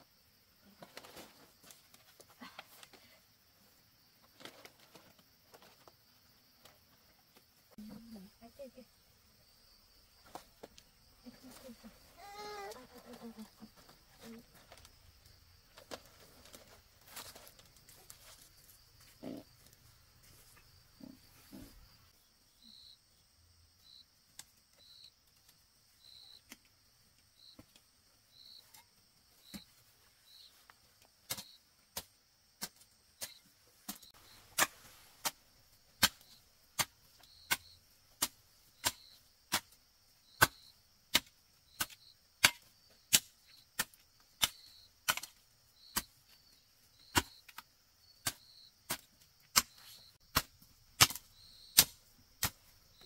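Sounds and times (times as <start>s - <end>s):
insects buzzing and chirping: 0.0s - 53.0s
blade chopping bamboo: 40.4s - 45.4s, 48.2s - 52.6s.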